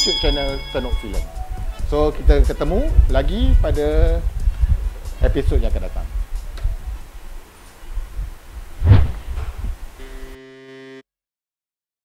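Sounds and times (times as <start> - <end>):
deep low thumps and rumble: 8.8 - 9.9
electronic tone: 10.0 - 11.0.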